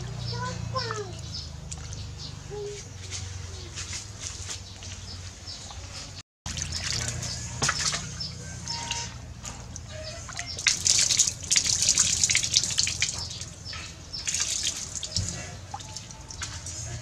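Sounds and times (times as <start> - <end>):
water splashing and dripping: 0.0 - 3.2, 5.6 - 17.0.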